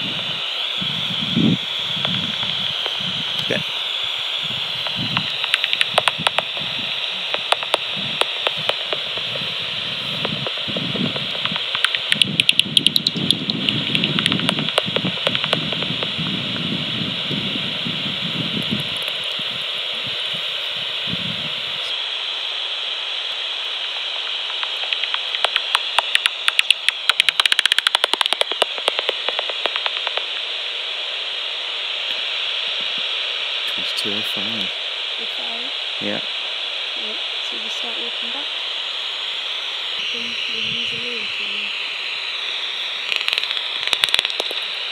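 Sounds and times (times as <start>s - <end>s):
bat detector hiss: 0.0s - 44.9s
bat echolocation clicks: 2.0s - 3.5s, 4.8s - 9.4s, 10.2s - 16.7s, 18.6s - 19.4s, 23.9s - 30.6s, 43.0s - 44.9s.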